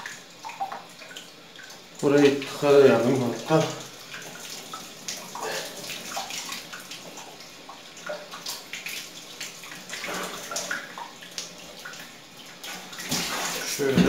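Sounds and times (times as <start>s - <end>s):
water gurgling: 0.0s - 14.0s
water splashing into bathtub: 0.0s - 14.0s.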